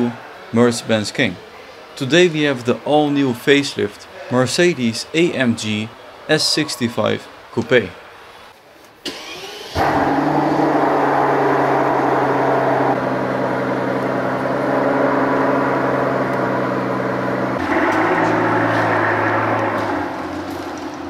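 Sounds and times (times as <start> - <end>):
car engine starting and idling: 9.0 - 21.0.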